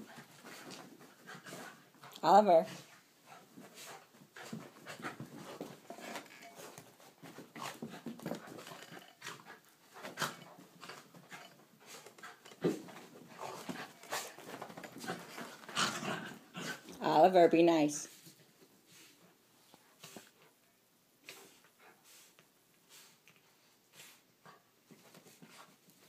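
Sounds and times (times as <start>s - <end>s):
dogs panting and scuffling: 0.0s - 26.0s.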